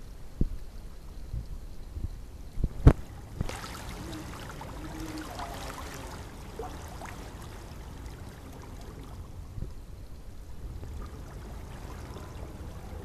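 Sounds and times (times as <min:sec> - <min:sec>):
water splashing into pool: 0:02.8 - 0:09.5, 0:10.7 - 0:13.0.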